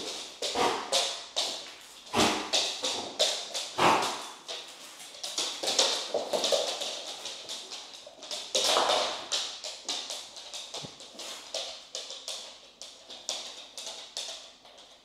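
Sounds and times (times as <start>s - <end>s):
dog nails clicking on hard floor: 0.0s - 15.0s.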